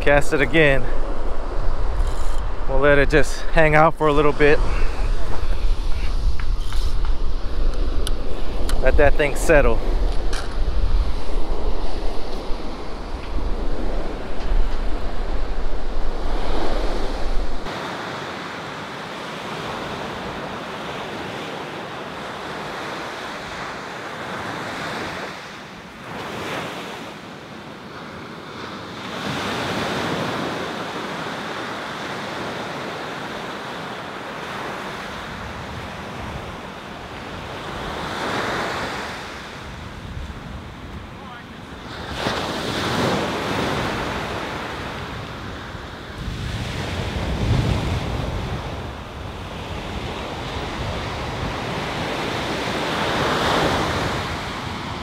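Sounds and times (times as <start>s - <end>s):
wind rumbling on microphone: 0.0s - 17.7s, 34.6s - 55.0s
ocean surf breaking: 0.0s - 55.0s.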